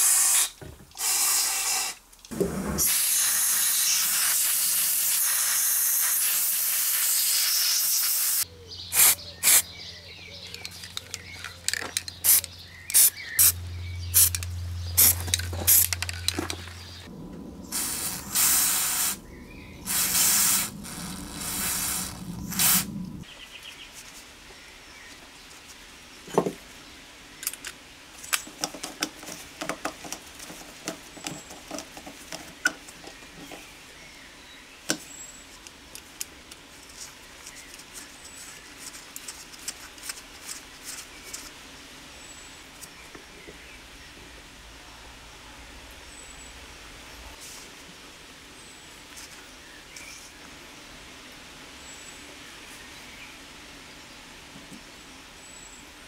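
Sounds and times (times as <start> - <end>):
aerosol spray hissing: 0.0 - 2.0, 2.8 - 8.4, 9.0 - 9.6, 17.7 - 23.2
small metal parts clicking: 10.5 - 13.5.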